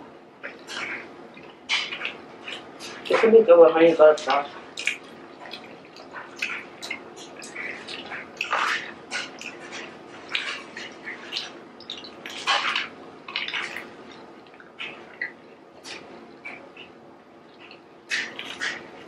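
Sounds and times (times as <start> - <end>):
wet mouth smacks: 4.8 - 16.9.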